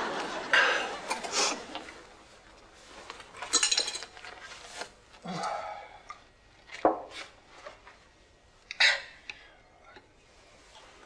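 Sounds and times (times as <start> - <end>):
cutlery and dishes clinking: 3.4 - 4.4.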